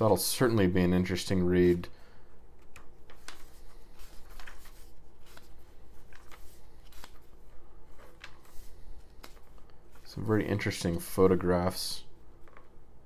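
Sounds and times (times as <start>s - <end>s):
paper pages rustling: 2.6s - 11.3s.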